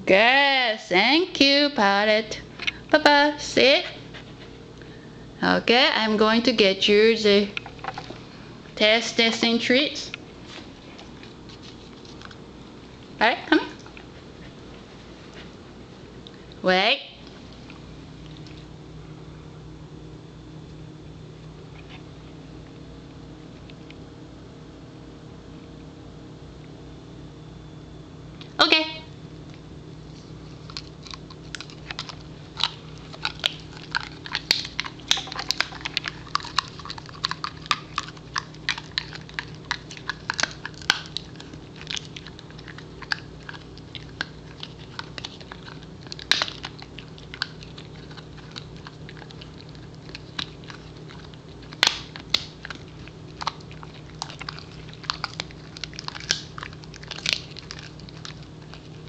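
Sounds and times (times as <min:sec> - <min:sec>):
dog chewing and crunching: 0:03.6 - 0:05.0, 0:05.9 - 0:16.6, 0:29.5 - 0:59.0.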